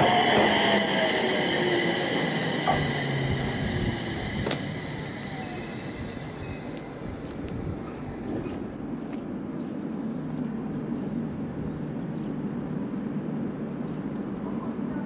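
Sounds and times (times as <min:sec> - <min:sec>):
train wheels clicking: 0:00.0 - 0:08.6
electric train motor whine: 0:00.0 - 0:08.7.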